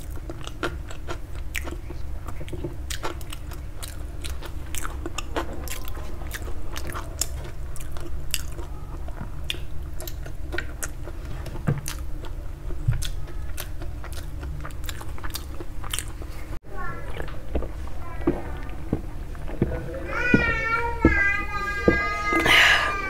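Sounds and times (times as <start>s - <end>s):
close chewing with wet mouth clicks: 0.0s - 16.4s.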